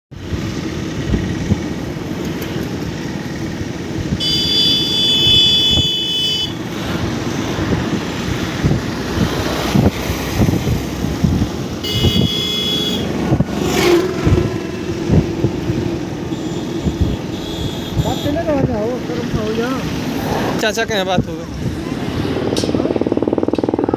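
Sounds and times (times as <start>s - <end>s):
vehicle engine humming: 0.1s - 23.9s
vehicle horn: 4.2s - 6.6s, 11.8s - 13.1s, 16.3s - 18.5s.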